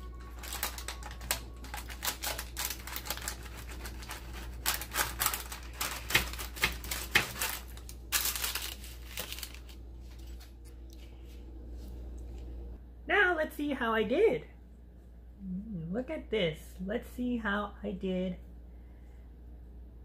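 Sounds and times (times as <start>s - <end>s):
pizza cutter crunching crust: 0.3s - 10.4s.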